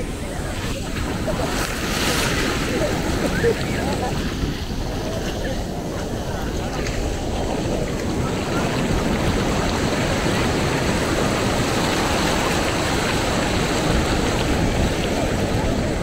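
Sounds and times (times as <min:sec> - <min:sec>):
ocean surf washing on beach: 0:00.0 - 0:16.0.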